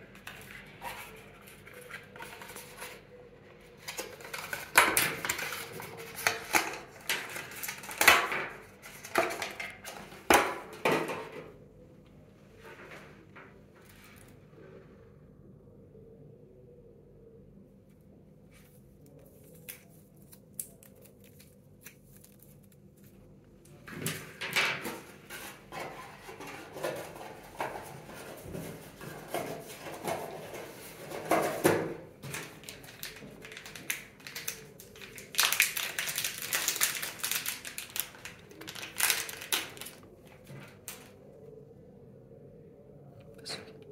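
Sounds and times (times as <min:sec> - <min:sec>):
plastic bag crinkling: 0:03.9 - 0:10.6, 0:32.2 - 0:41.1.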